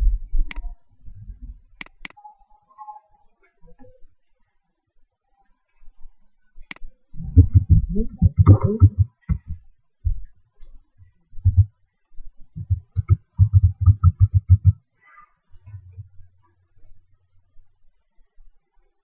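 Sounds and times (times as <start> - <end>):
keyboard typing: 7.4 - 9.6, 12.6 - 14.8.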